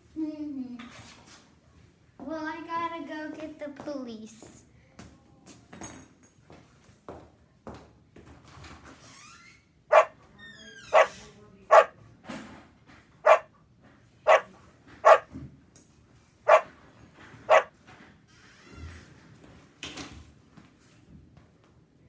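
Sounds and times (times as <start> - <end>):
dog barking: 9.9 - 10.2, 10.9 - 12.0, 13.2 - 13.5, 14.3 - 15.3, 16.5 - 16.7, 17.5 - 17.7.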